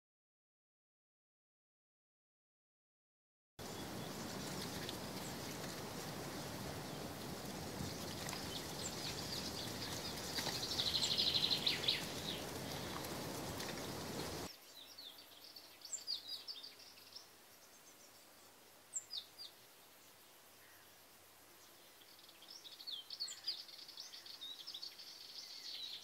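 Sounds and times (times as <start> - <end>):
steady outdoor hiss: 3.6 - 26.0
high bird chirps: 7.8 - 15.1.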